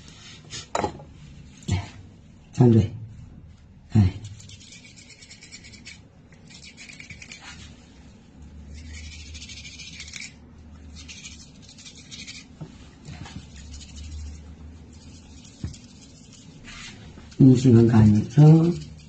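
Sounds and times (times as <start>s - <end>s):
toothbrush scrubbing teeth: 4.1s - 7.8s, 8.6s - 19.0s.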